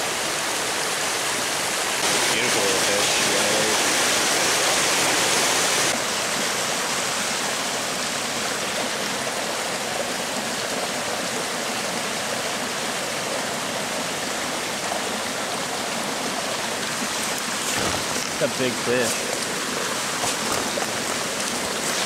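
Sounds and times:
brook rushing over stones: 15.0 - 22.0.

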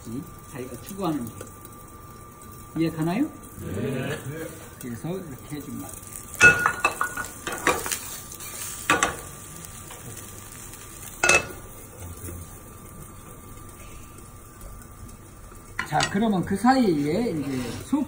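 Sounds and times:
patty sizzling in a frying pan: 0.0 - 18.0
metal pans clanking: 6.3 - 8.0, 8.8 - 9.3, 11.2 - 11.7, 15.8 - 16.3.

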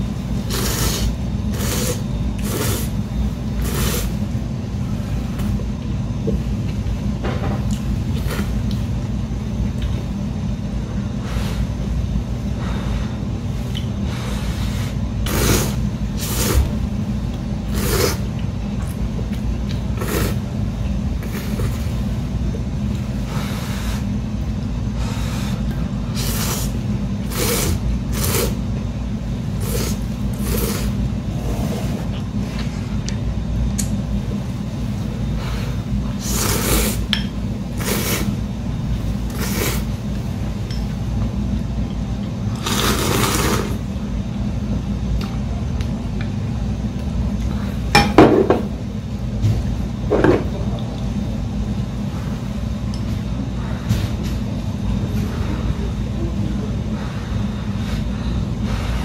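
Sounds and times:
steady low hum: 0.0 - 59.0
woman slurping noodles: 0.5 - 3.0, 3.6 - 4.2, 14.5 - 16.7, 17.7 - 18.3, 20.0 - 20.4, 26.2 - 28.6, 29.6 - 32.2, 36.2 - 37.0, 37.8 - 38.3, 39.3 - 39.9, 42.6 - 43.8.

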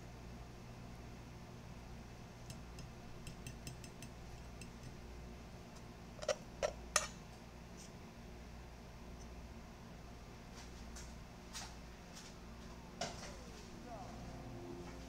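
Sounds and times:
utensils and dishes clicking: 2.5 - 5.0, 6.2 - 7.2.

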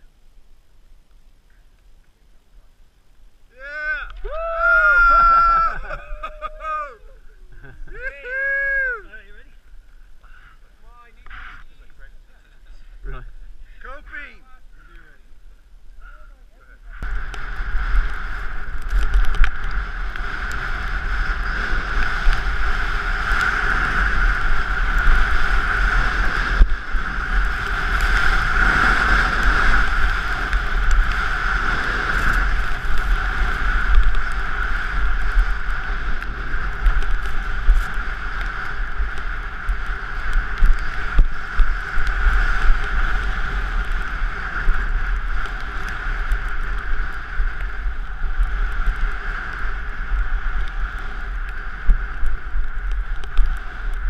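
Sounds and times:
wind rushing over microphone: 3.5 - 16.2, 16.8 - 54.0
skis hissing through snow: 17.0 - 54.0.

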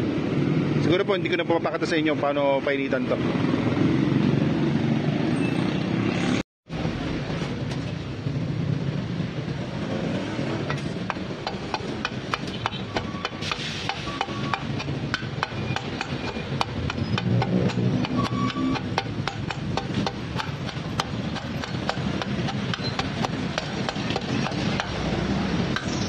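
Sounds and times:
rubber mallet tapping metal: 14.2 - 25.0.

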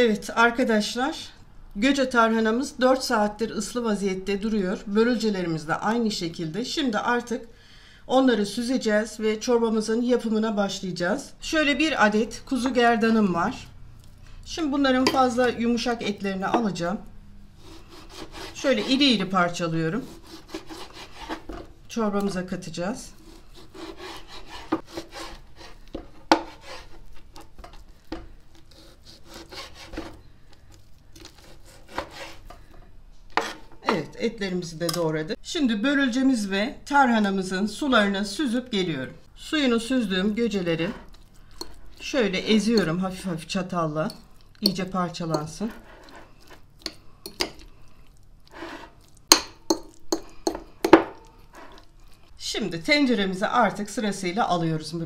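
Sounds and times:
fork mashing food in a bowl: 17.6 - 19.0, 20.0 - 22.3, 23.1 - 32.7, 40.5 - 43.3, 44.0 - 52.2
knife sawing through meat: 17.6 - 19.2, 19.9 - 21.5, 23.1 - 27.2, 28.5 - 30.2, 31.2 - 32.5
fork scraping bowl: 17.6 - 19.3, 19.9 - 21.7, 23.0 - 33.9, 40.5 - 43.2, 44.0 - 52.3.

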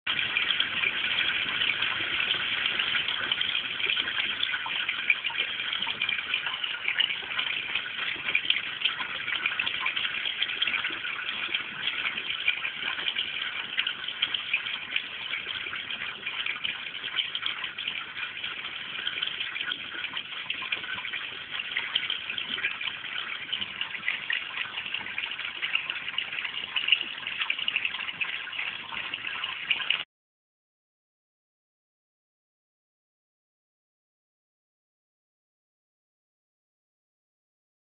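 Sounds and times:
water splashing into pond: 0.1 - 30.1.

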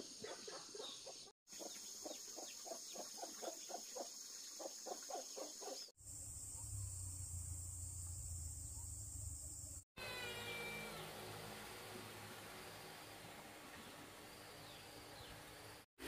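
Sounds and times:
high insect buzz: 6.0 - 11.7.

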